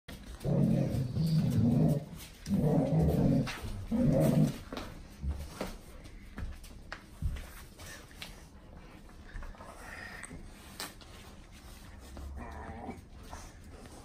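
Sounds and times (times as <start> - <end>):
dogs growling: 0.1 - 5.6, 9.2 - 10.7, 12.1 - 14.0
light clicks and scuffles: 1.2 - 9.6.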